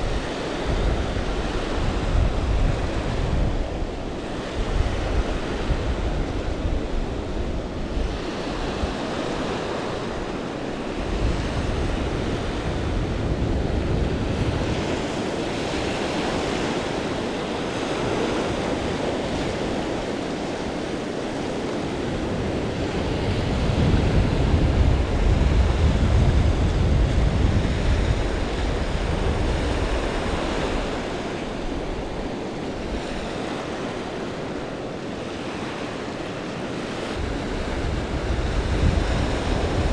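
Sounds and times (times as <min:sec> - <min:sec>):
surf washing on beach: 0:00.0 - 0:39.9
wind buffeting microphone: 0:00.0 - 0:39.9.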